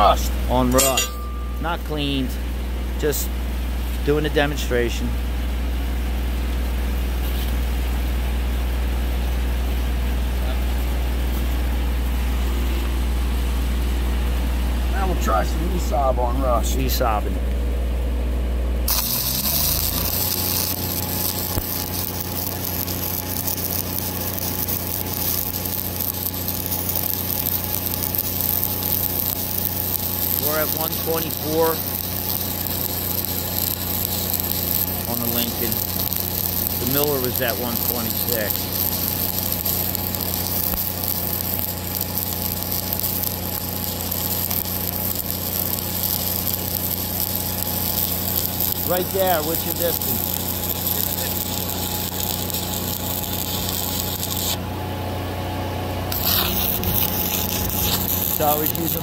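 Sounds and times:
welder engine humming: 0:00.0 - 0:59.0
welding arc crackling hiss: 0:05.8 - 0:13.1, 0:18.8 - 0:54.6, 0:56.1 - 0:59.0.

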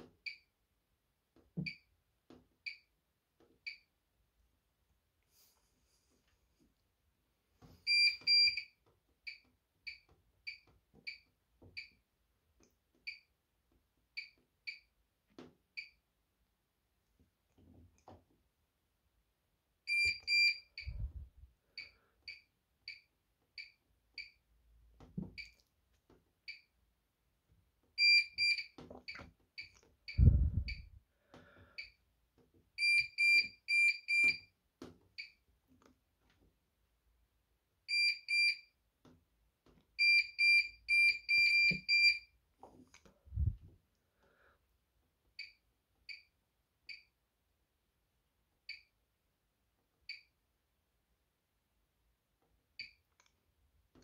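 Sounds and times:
washing machine panel beeps: 0:07.9 - 0:08.7, 0:19.9 - 0:21.1, 0:28.0 - 0:30.9, 0:32.8 - 0:34.5, 0:37.9 - 0:38.7, 0:40.0 - 0:42.3.

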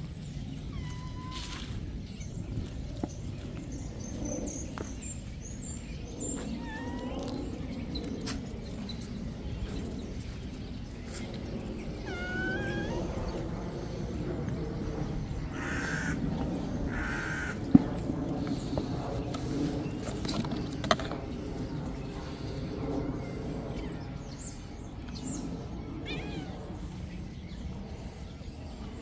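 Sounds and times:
cats meowing: 0:00.6 - 0:01.8, 0:06.4 - 0:07.2, 0:11.9 - 0:13.5, 0:26.0 - 0:27.0.

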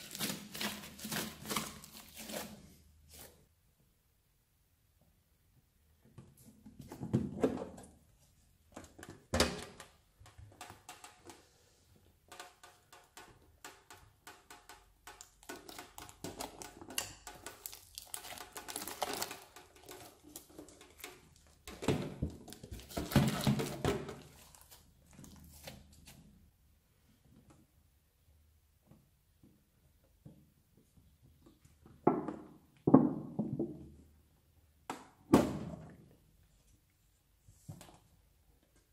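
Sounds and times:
slime crackling and popping: 0:15.2 - 0:20.5.

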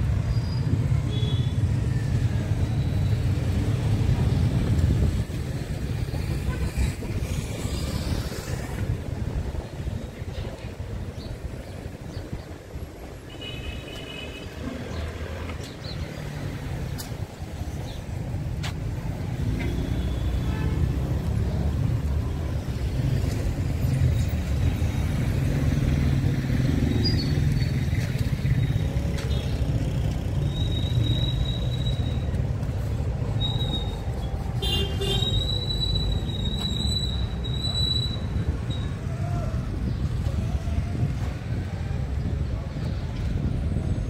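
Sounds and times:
passing vehicles rumble: 0:00.0 - 0:44.0.

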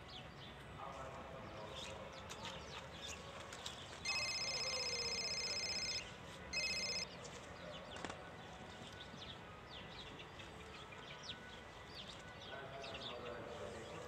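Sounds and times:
mobile phone ringtone: 0:04.0 - 0:07.1
birds chirping faintly: 0:06.6 - 0:07.1.

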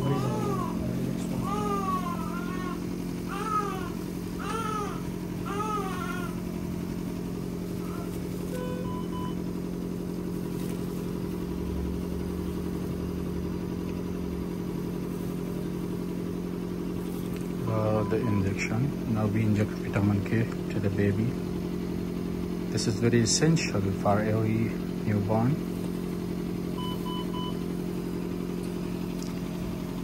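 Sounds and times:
newborn baby crying: 0:00.0 - 0:06.5, 0:07.8 - 0:09.0
steady mechanical hum: 0:00.0 - 0:30.0.

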